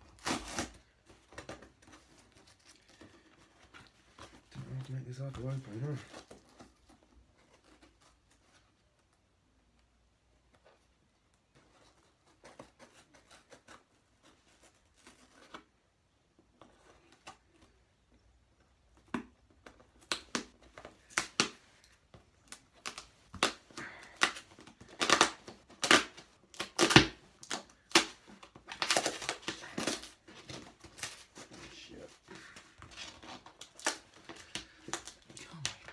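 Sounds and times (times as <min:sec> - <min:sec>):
cardboard being cut and torn: 0:00.0 - 0:02.0, 0:20.0 - 0:35.6.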